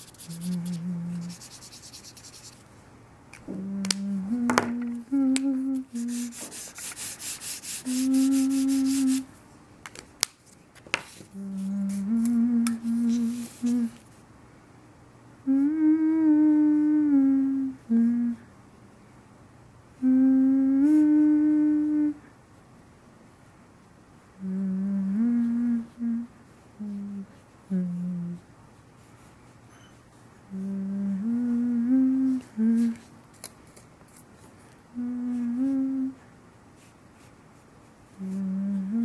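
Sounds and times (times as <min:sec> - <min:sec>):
person humming: 0:00.0 - 0:02.5, 0:03.4 - 0:09.3, 0:11.3 - 0:14.0, 0:15.4 - 0:18.5, 0:20.0 - 0:22.3, 0:24.4 - 0:28.5, 0:30.5 - 0:33.1, 0:34.9 - 0:36.3, 0:38.2 - 0:39.0.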